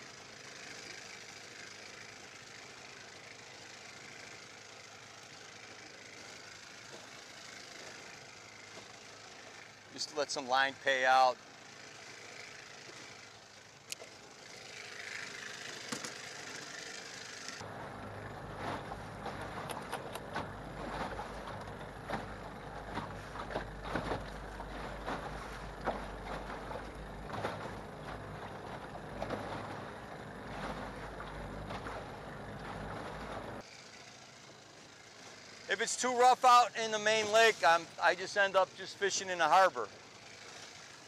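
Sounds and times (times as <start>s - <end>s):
water slapping against boat hull: 18.4s - 33.6s.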